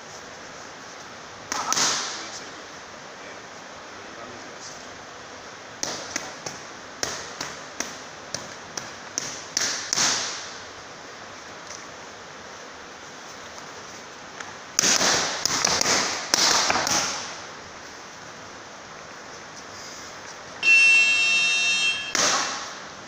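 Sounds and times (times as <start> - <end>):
boxing gloves hitting focus mitts: 5.8 - 10.6, 14.8 - 17.4, 22.1 - 22.8.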